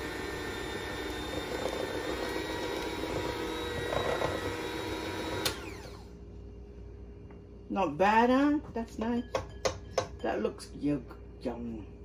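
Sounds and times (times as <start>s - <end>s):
hand mixer whisking batter: 0.0s - 6.0s.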